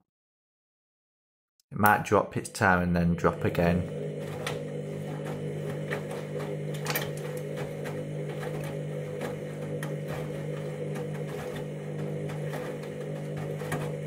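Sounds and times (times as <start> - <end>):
washing machine humming: 2.9 - 14.0.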